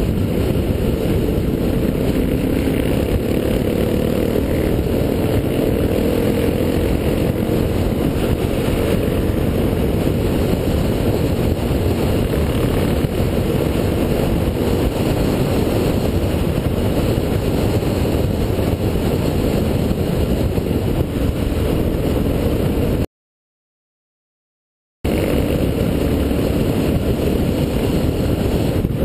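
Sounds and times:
motorcycle engine cruising: 0.0s - 23.1s, 25.1s - 29.0s
wind rush on microphone: 0.0s - 23.1s, 25.1s - 29.0s.

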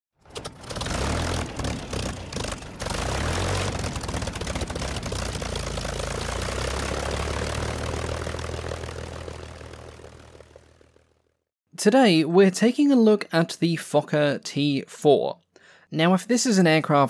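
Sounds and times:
propeller aircraft engine drone: 0.2s - 11.4s.

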